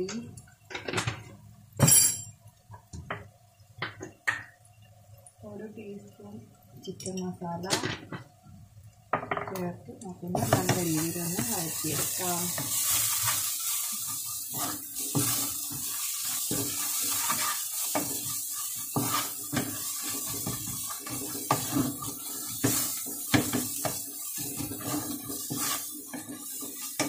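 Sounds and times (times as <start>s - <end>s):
onions sizzling in oil: 9.8s - 27.0s
wooden spatula scraping a pan: 10.3s - 27.0s.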